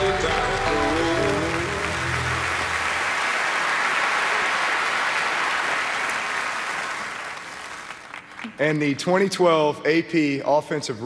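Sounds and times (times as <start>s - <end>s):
large audience applauding: 0.0s - 8.6s.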